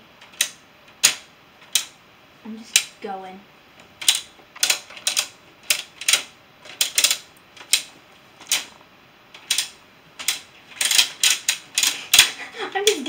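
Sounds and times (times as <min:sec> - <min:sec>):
plastic tiles clicking down: 0:00.2 - 0:02.0, 0:04.0 - 0:08.7, 0:09.4 - 0:13.0.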